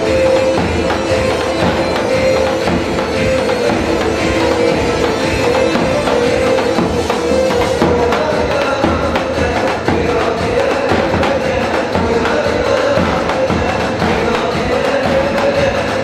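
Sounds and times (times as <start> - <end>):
bass drum beating: 0.0 - 16.0
held melody line: 0.0 - 16.0.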